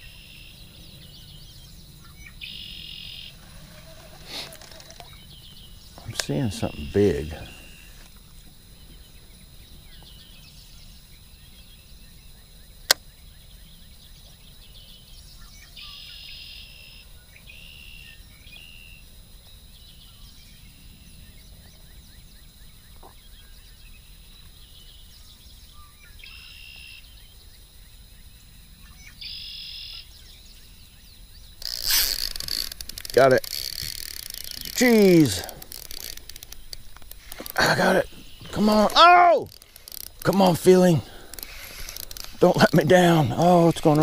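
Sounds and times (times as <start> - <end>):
birds calling: 0.0 - 19.0, 28.7 - 44.0.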